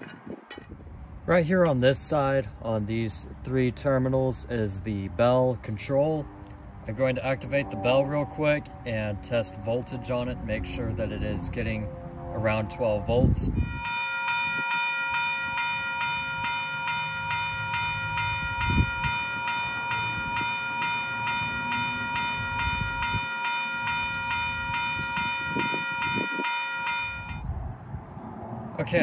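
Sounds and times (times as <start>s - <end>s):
electronic crossing bell ringing: 13.6s - 27.5s.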